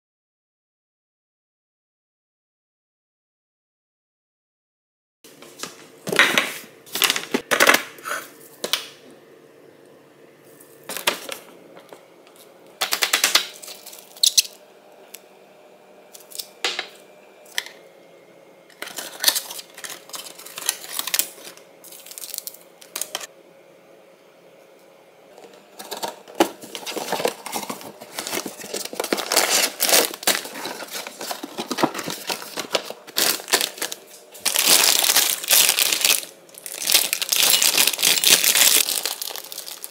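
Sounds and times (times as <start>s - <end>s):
plastic packets crinkling: 12.8s - 14.5s, 18.8s - 23.3s, 25.8s - 39.9s
corn kernels rattling into bowl: 33.1s - 39.9s.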